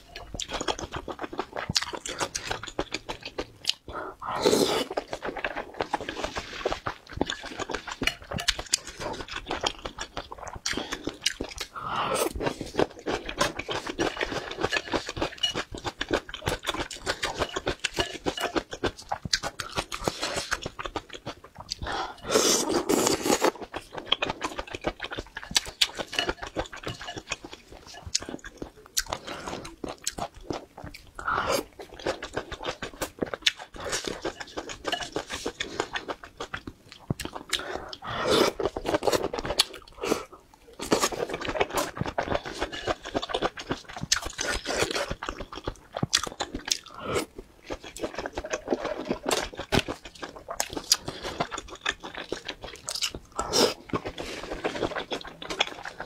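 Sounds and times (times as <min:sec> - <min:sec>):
close chewing and biting: 0:00.0 - 0:56.0.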